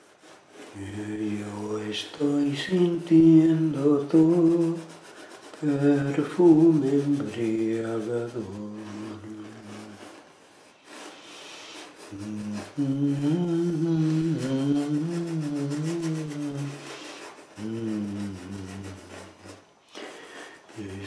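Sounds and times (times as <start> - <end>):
paintbrush rubbing on canvas: 0.0 - 21.0
man humming: 5.6 - 10.1, 12.0 - 20.1.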